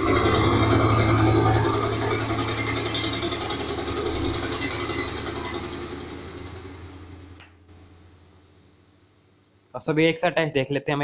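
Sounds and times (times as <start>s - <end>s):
dense higher sound layer: 0.0s - 8.2s
deep rumble: 0.0s - 8.5s.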